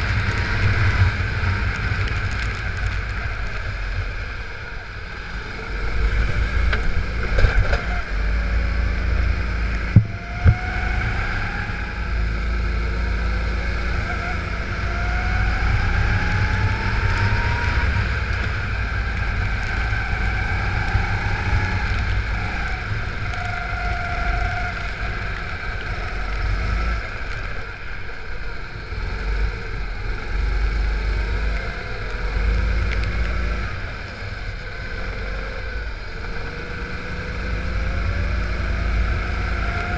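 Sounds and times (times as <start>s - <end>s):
heavy low rumble: 0.0s - 14.0s
go-kart engine revving: 0.0s - 39.9s.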